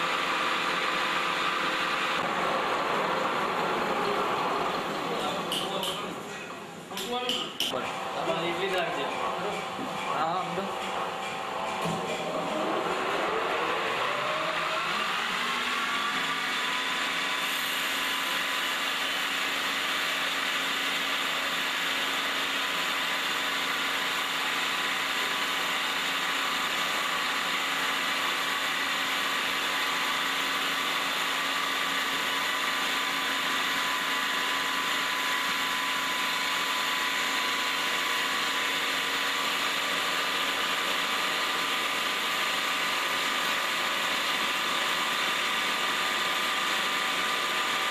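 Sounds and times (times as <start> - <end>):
wood lathe whining: 12.4 - 47.9.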